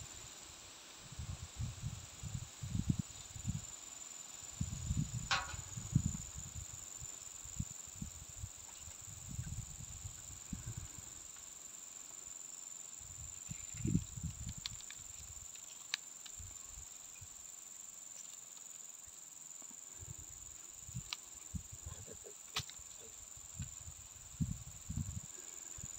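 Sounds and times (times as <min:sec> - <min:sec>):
high-pitched insect drone: 0:01.4 - 0:25.9
faint ticks: 0:13.5 - 0:16.7, 0:20.9 - 0:21.4.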